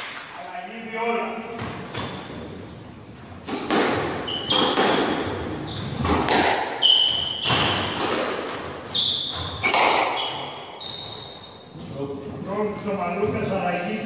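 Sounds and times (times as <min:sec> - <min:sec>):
squash ball hits: 0:03.4 - 0:10.7
shoes squeaking on floor: 0:04.0 - 0:12.0.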